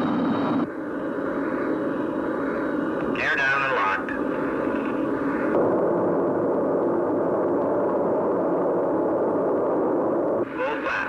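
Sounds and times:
jet engines droning: 0:00.0 - 0:11.0.

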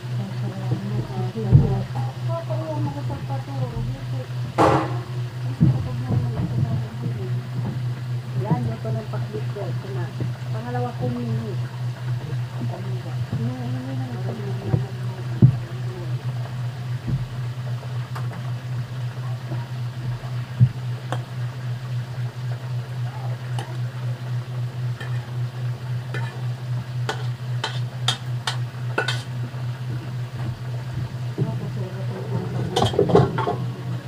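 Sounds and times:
faint sizzle: 0:00.0 - 0:34.0
steady low hum: 0:00.0 - 0:34.0.

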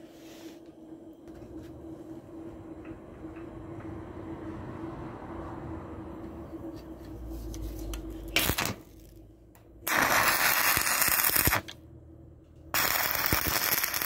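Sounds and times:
faint steady hum: 0:00.0 - 0:14.0
crackling welding arc: 0:08.3 - 0:09.2, 0:09.8 - 0:11.8, 0:12.7 - 0:14.0.

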